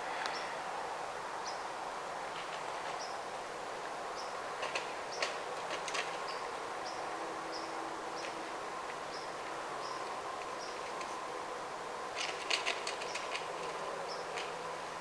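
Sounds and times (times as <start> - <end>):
background hiss: 0.0 - 15.0
crisp clicks and rustles: 4.6 - 6.4, 8.2 - 11.3, 12.1 - 14.7.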